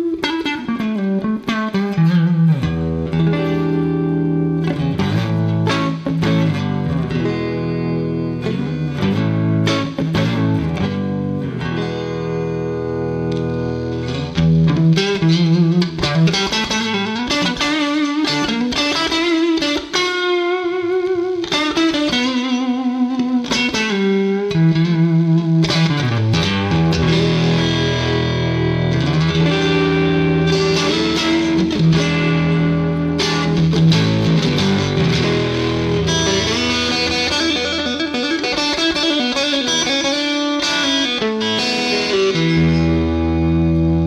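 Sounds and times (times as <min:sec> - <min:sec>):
electric guitar melody: 0:00.0 - 0:44.0.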